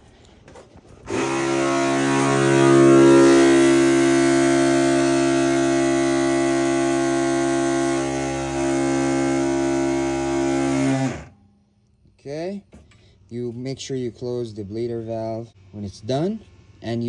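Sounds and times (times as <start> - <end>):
electric pump hum-whine: 0.5 - 11.5.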